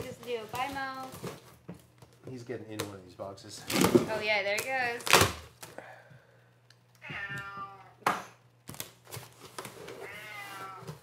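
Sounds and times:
cat meowing: 7.0 - 8.0, 10.0 - 11.0.

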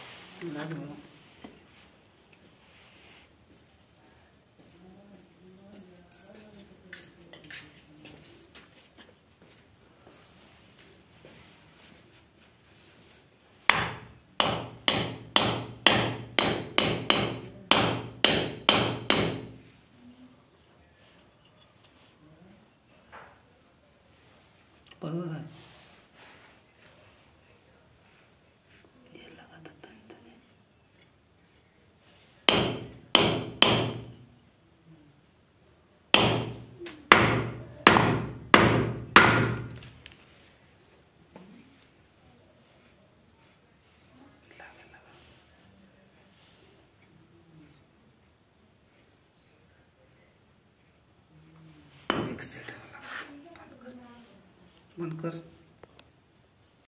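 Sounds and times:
hammer striking metal: 13.7 - 19.6, 32.5 - 34.2, 36.2 - 39.8.

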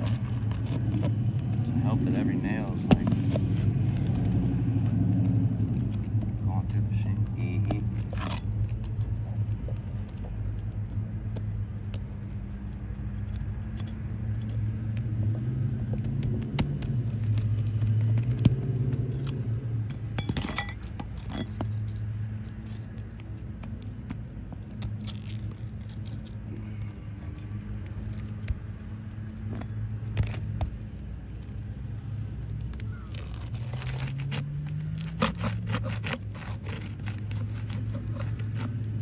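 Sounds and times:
pry bar scraping and clicking: 0.0 - 1.6, 7.6 - 12.0, 12.6 - 31.0, 32.5 - 39.0
steady low hum: 0.0 - 39.0.

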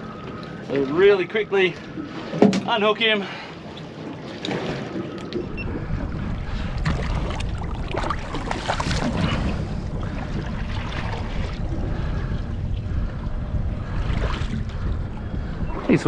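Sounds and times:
water splashing against boat: 0.0 - 16.0
steady low rumble: 5.2 - 16.0.

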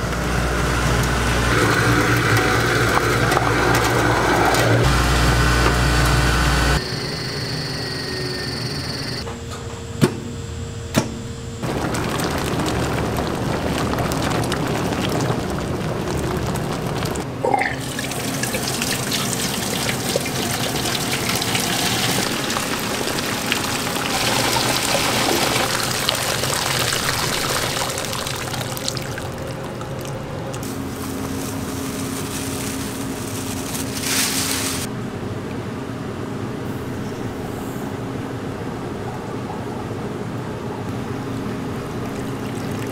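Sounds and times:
liquid pouring and splashing: 11.6 - 34.9, 41.8 - 42.9.

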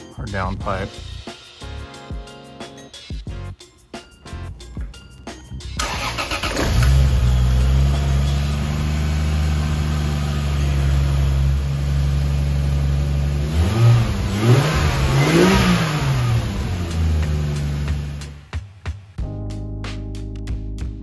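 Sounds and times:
car engine idling and revving: 5.8 - 18.5.

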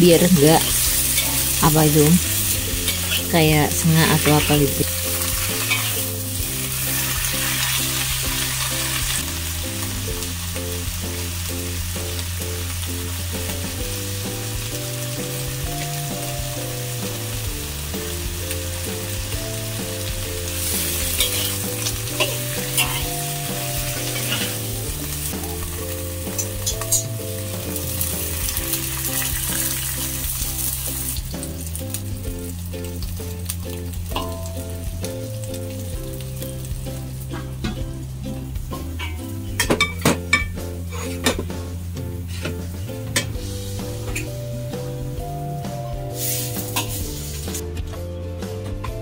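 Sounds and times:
vegetables sizzling in a wok: 0.0 - 47.8
background music with bass line: 0.0 - 49.0
metal spatula in a wok: 0.3 - 9.9, 19.8 - 31.4, 32.9 - 34.9, 38.6 - 41.6, 46.2 - 47.6.

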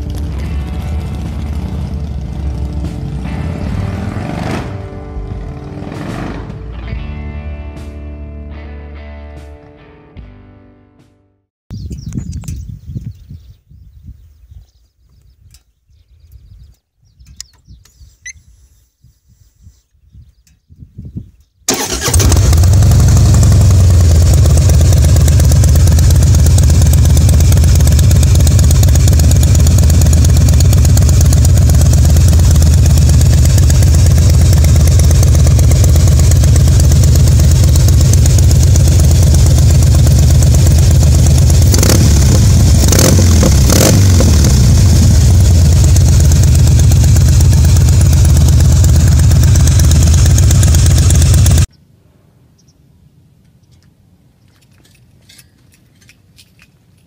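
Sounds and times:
motorcycle engine idling: 0.0 - 4.0, 21.7 - 51.7
motorcycle throttle blips: 21.7 - 51.7.

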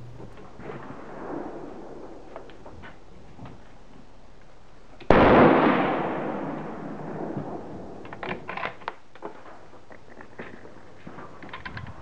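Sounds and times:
rifle shot with echo: 5.1 - 8.2.

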